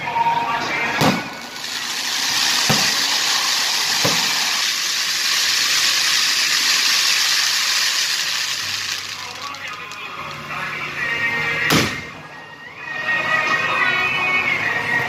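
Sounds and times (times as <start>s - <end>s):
fireworks fountains hissing: 0.8s - 10.6s.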